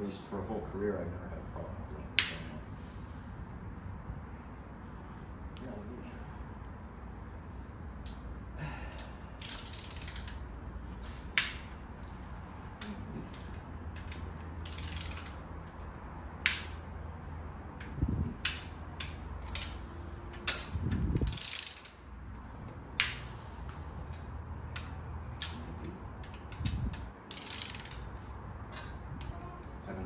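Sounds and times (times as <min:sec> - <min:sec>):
ratchet clicks: 0:09.4 - 0:10.5, 0:13.9 - 0:15.6, 0:16.4 - 0:16.9, 0:17.8 - 0:23.3, 0:24.1 - 0:28.2.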